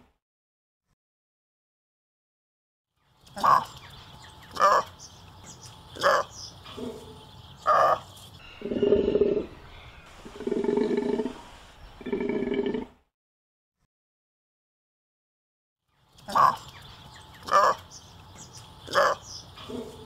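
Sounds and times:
takin calling: 0:07.8 - 0:09.6.

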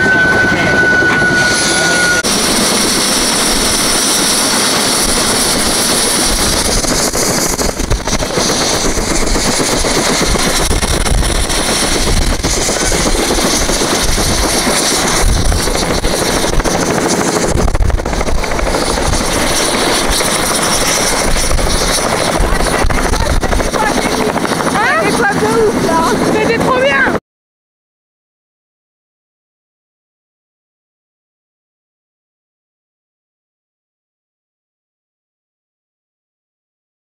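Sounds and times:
thin high whine: 0:00.0 - 0:02.3
helicopter engine and rotor: 0:00.0 - 0:27.2.

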